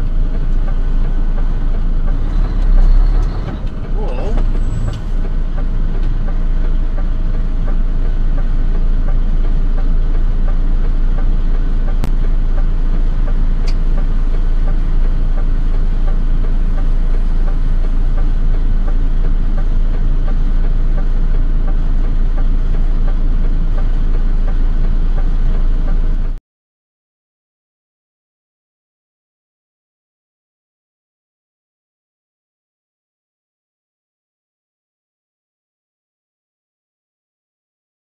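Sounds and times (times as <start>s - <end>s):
vehicle engine idling: 0.0s - 26.4s.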